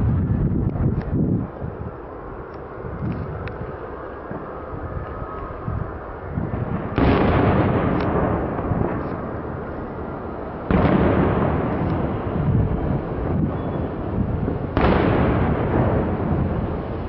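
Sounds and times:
firework booms with echo: 6.5 - 17.0
small firework pops: 6.9 - 9.4, 10.7 - 12.0.

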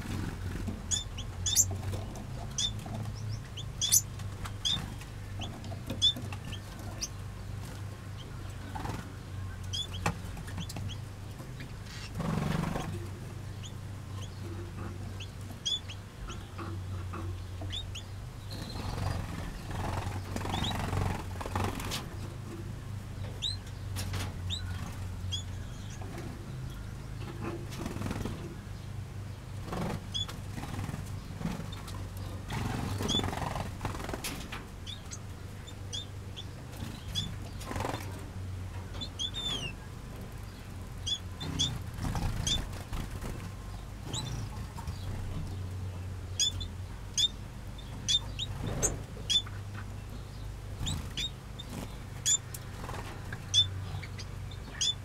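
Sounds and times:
small birds chirping: 0.0 - 55.0
steady low hum: 0.0 - 55.0
wing flutters: 18.5 - 22.2, 29.6 - 35.2, 36.7 - 38.2, 41.5 - 45.2.

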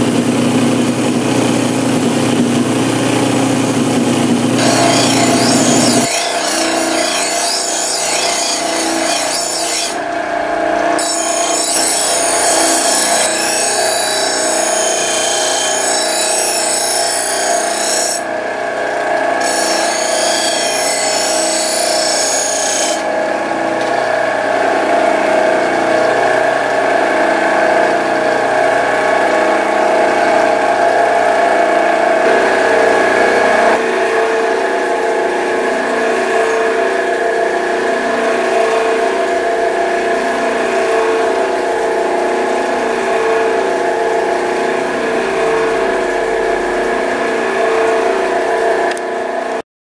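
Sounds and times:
bench grinder humming: 0.0 - 49.6
knife blade hissing on grinder wheel: 4.6 - 10.0, 10.9 - 18.2, 19.4 - 23.1.

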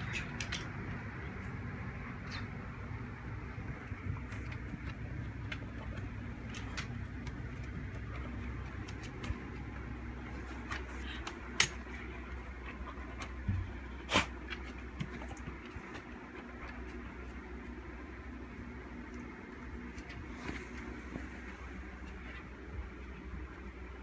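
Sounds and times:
steady low hum: 0.0 - 24.0
light clicks and taps on floor: 3.9 - 9.8.

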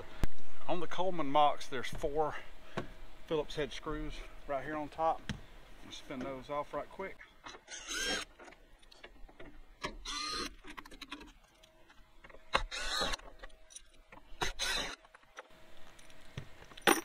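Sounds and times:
cordless drill motor: 7.6 - 8.3, 10.0 - 11.8, 12.5 - 15.5.

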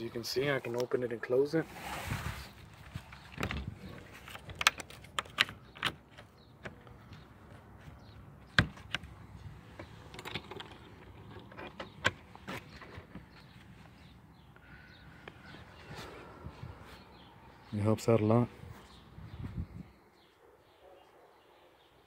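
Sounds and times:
metal latch clicks: 3.2 - 7.0, 9.8 - 13.2.

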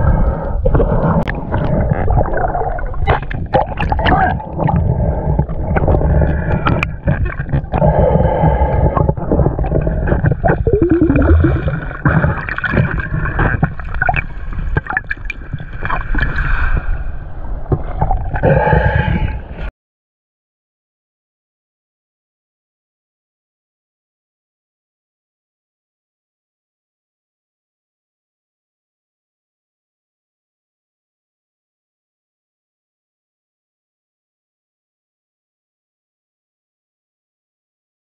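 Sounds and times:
water rushing and gurgling underwater: 0.0 - 19.7.

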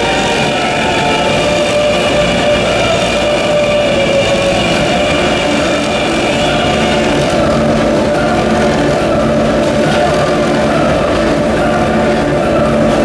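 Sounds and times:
motorcycle engines droning: 0.0 - 13.0.

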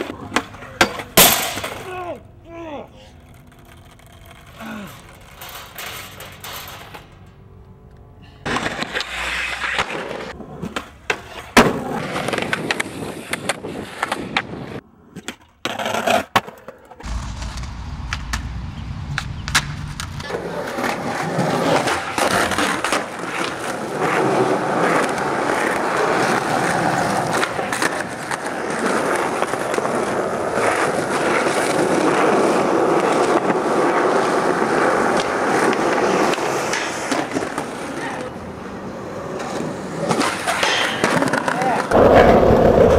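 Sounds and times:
skateboard wheels rolling on concrete: 0.0 - 42.9
skateboard clacks and impacts: 8.4 - 17.1, 19.2 - 42.9.

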